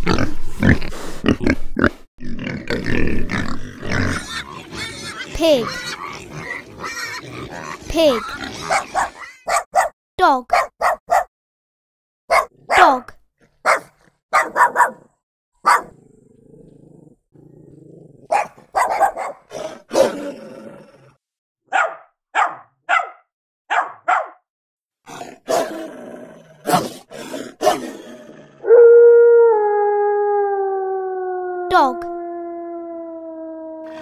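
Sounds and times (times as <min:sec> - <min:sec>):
dogs barking: 0:04.2 - 0:09.9, 0:10.5 - 0:11.3, 0:12.3 - 0:12.9, 0:13.6 - 0:16.0, 0:18.3 - 0:20.2, 0:21.7 - 0:24.4, 0:25.4 - 0:25.8, 0:26.7 - 0:28.0
dog growling: 0:15.9 - 0:18.4, 0:19.4 - 0:21.2, 0:25.1 - 0:28.7
dog howling: 0:28.6 - 0:34.0.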